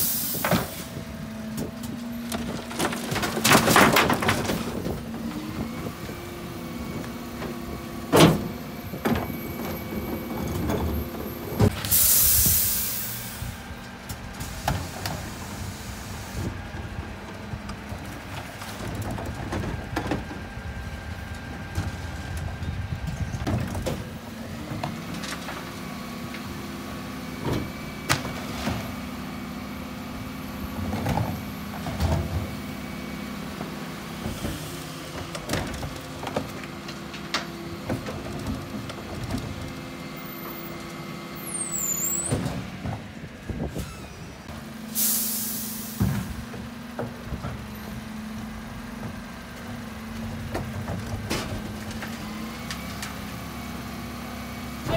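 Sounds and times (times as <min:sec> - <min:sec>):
wheelie bins rattling: 0:00.6 - 0:05.8
bins knocking and clattering: 0:01.6 - 0:05.7, 0:30.7 - 0:32.6, 0:50.2 - 0:52.3.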